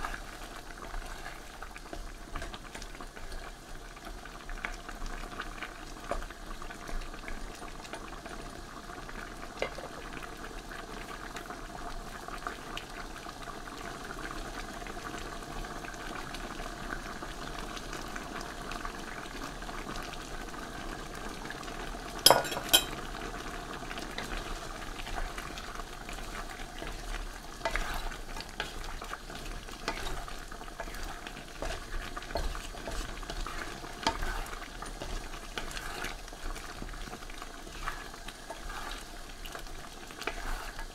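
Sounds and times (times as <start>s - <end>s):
wooden spatula scraping stew: 0.0s - 3.5s, 23.4s - 40.9s
stew simmering and bubbling: 0.0s - 40.9s.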